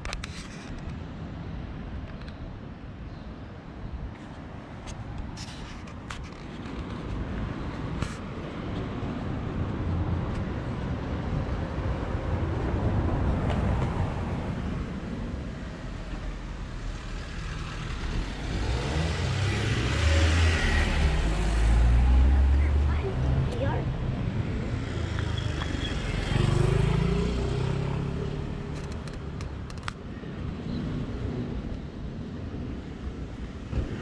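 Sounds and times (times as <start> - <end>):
vehicles passing: 0.0 - 34.0.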